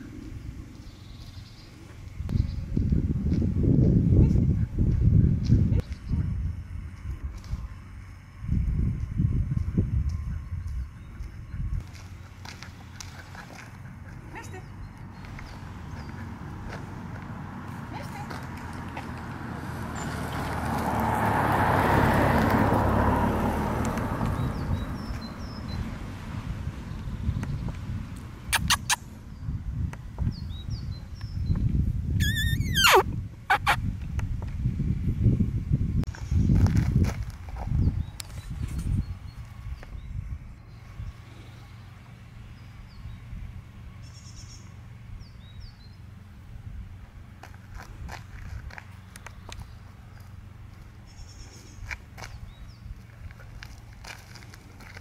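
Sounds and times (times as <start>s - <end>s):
low outdoor rumble: 0.0s - 55.0s
small birds chirping: 0.1s - 3.1s, 4.2s - 6.4s, 10.1s - 16.9s, 24.2s - 26.0s, 28.4s - 29.6s, 30.2s - 33.8s, 37.6s - 46.3s, 48.7s - 55.0s
car passing by: 15.2s - 27.3s.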